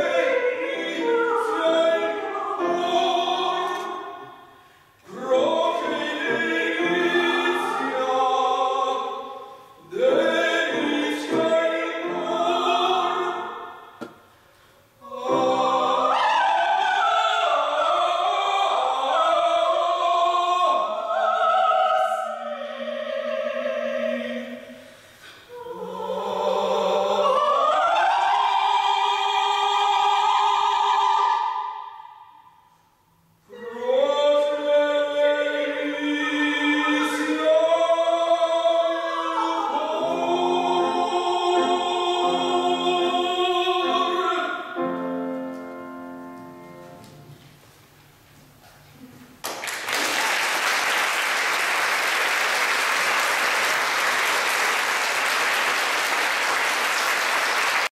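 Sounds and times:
woman and man singing opera: 0.0s - 4.2s, 5.0s - 13.8s, 15.0s - 24.8s, 25.5s - 31.9s, 33.5s - 45.0s
grand piano: 0.0s - 4.5s, 5.1s - 14.1s, 34.4s - 49.5s
audience applauding: 49.4s - 57.9s.

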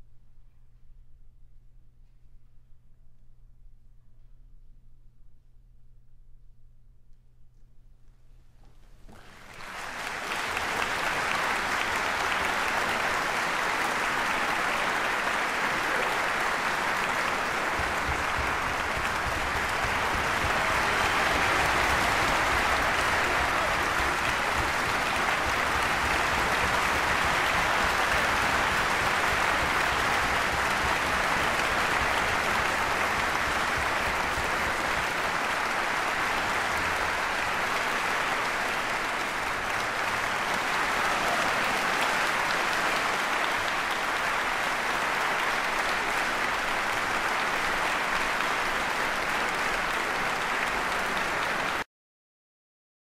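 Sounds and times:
audience applauding: 9.1s - 51.8s.

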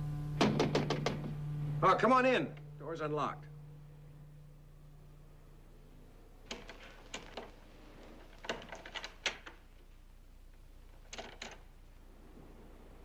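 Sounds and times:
door latch clicks and knocks: 0.4s - 1.3s.

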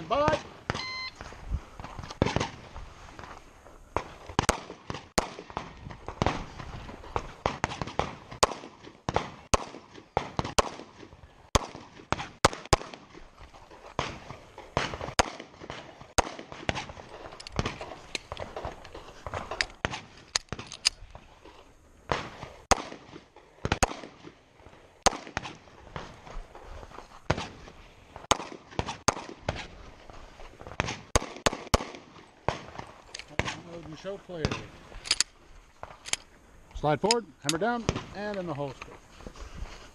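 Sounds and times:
pistol shots: 4.0s - 6.4s, 7.4s - 13.2s, 14.0s - 18.7s, 22.1s - 24.3s, 25.0s - 26.1s, 28.2s - 29.7s, 30.8s - 33.6s.

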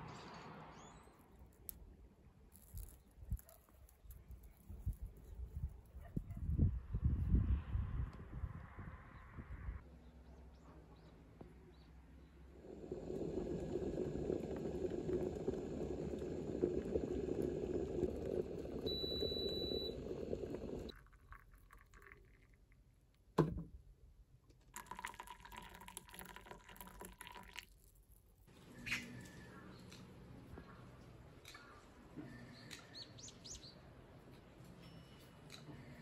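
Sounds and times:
water boiling in a kettle: 12.6s - 22.7s, 24.7s - 27.8s
tea pouring into a pitcher: 12.6s - 22.9s, 24.7s - 28.2s.

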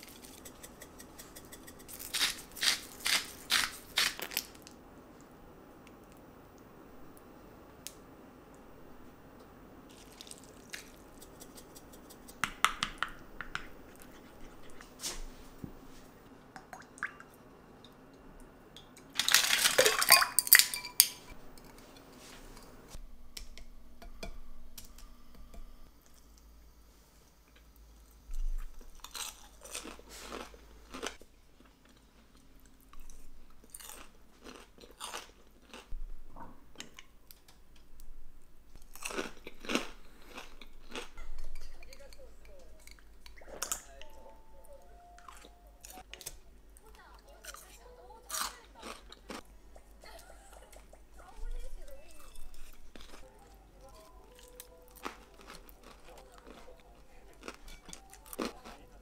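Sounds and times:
crunching and chewing potatoes: 1.2s - 4.8s, 9.9s - 12.4s, 28.0s - 36.0s, 38.7s - 42.2s, 45.2s - 49.9s, 51.4s - 59.0s
dishes clinking and clattering: 19.2s - 22.7s.

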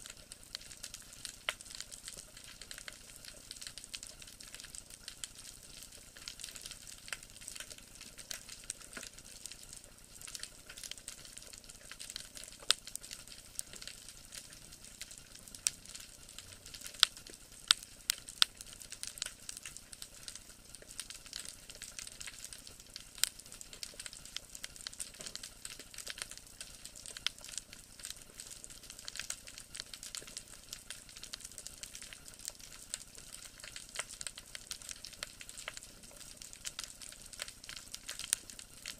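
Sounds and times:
underwater crackle: 0.0s - 38.9s.

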